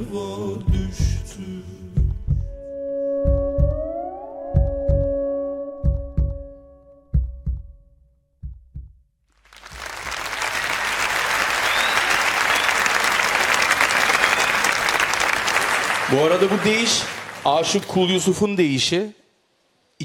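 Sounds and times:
music with low beats and held tones: 0:00.0 - 0:09.1
studio audience applause: 0:09.4 - 0:18.4.

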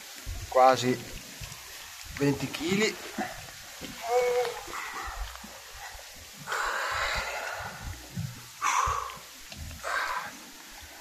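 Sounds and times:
person breathing heavily: 0:04.7 - 0:10.4.

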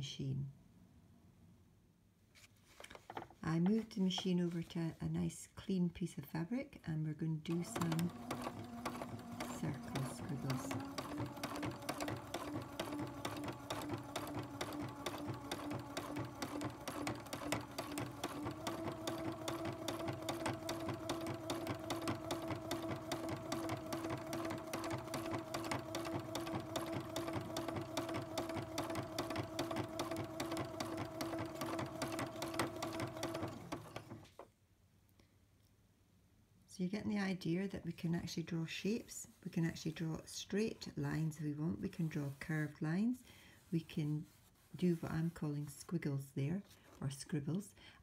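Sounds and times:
sewing machine stitching: 0:07.5 - 0:34.4.

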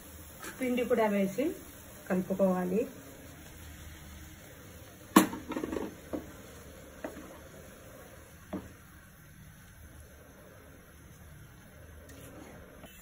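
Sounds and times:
utensils knocking on metal pan: 0:05.1 - 0:06.3.

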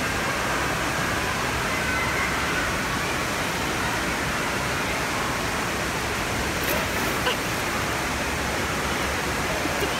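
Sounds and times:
running water rushing: 0:00.0 - 0:09.9
small splash into pool: 0:06.6 - 0:07.8.

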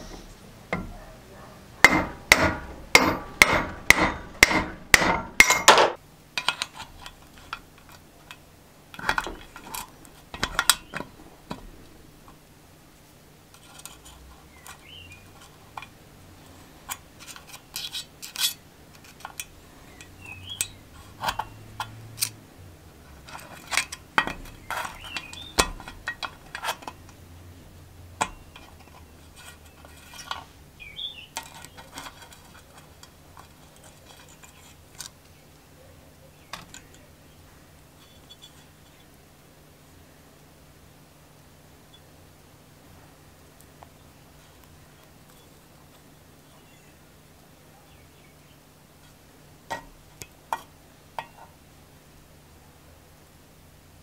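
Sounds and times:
metal hammer blows: 0:01.8 - 0:06.0.

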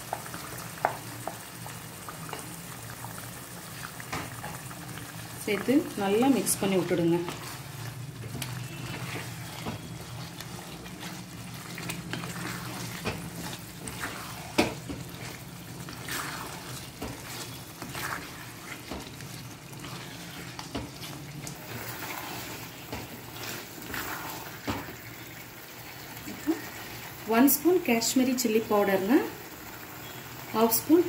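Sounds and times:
sizzle of frying in oil: 0:00.0 - 0:31.0
wooden spatula scraping a pan: 0:04.1 - 0:25.4.

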